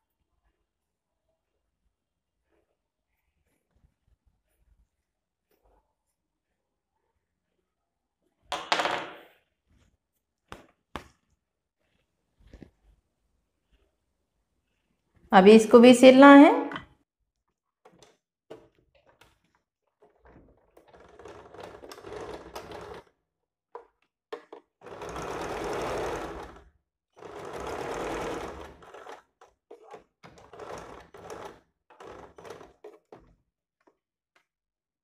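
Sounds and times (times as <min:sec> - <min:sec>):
sewing machine stitching: 0:19.9 - 0:23.2, 0:24.4 - 0:33.4.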